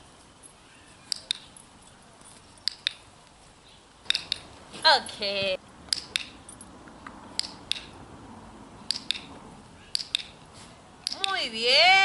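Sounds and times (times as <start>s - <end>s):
clicker double clicks: 4.1s - 4.5s, 5.9s - 6.4s, 7.4s - 7.9s, 8.9s - 9.3s, 9.9s - 10.4s, 11.0s - 11.4s.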